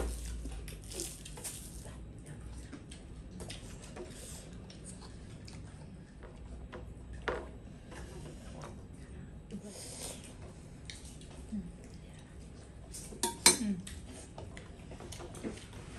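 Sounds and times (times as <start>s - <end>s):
chewing: 0.1s - 7.3s, 10.1s - 12.7s.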